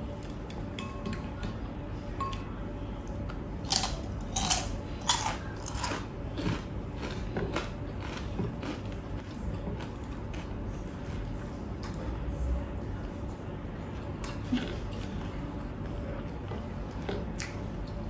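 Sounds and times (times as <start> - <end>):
person chewing crunchy food: 3.6 - 12.0.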